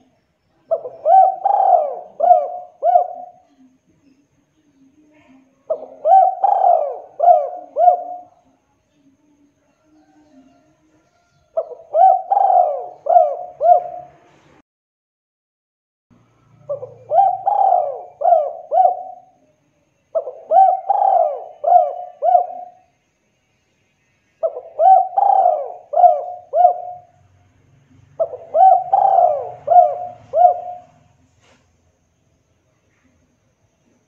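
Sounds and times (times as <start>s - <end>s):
dove cooing: 0.7s - 3.7s, 5.7s - 8.5s, 11.5s - 14.3s, 16.6s - 19.4s, 20.1s - 22.9s, 24.4s - 27.3s, 27.9s - 31.3s.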